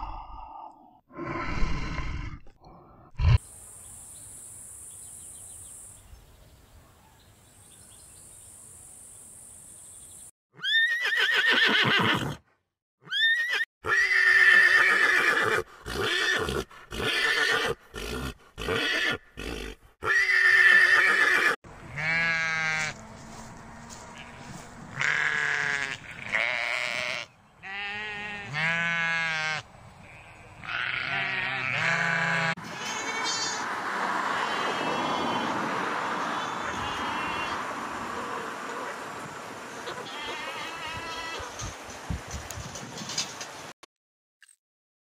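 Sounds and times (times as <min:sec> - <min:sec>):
horses neighing: 0:10.6 - 0:12.4, 0:13.1 - 0:22.8
sheep bleating: 0:21.9 - 0:23.0, 0:23.8 - 0:33.6, 0:36.2 - 0:37.6, 0:39.9 - 0:41.5.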